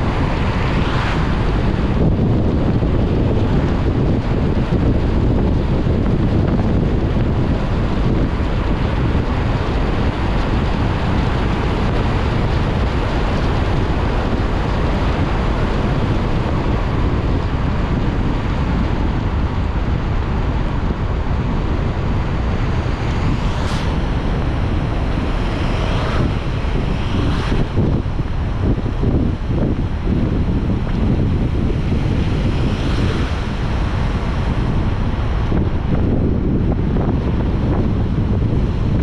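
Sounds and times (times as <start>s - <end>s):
tyres hissing on wet road: 0.0s - 6.0s, 6.7s - 36.2s
car driving low rumble: 0.0s - 39.0s
wind noise: 0.0s - 39.0s
rising swish: 23.0s - 28.4s.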